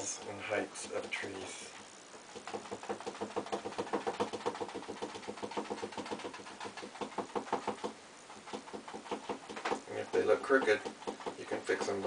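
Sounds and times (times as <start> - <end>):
paintbrush tapping on canvas: 2.4 - 12.0.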